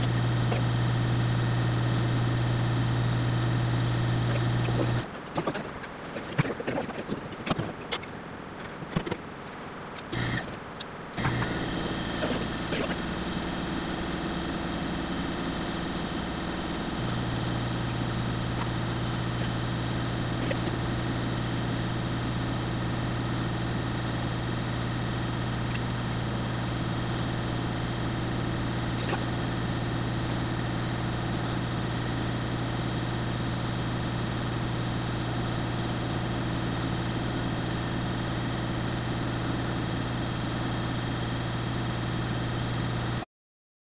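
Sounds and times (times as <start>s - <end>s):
deeper hum: 0.0s - 5.1s, 11.2s - 42.6s
milling machine cutting metal: 11.2s - 22.0s.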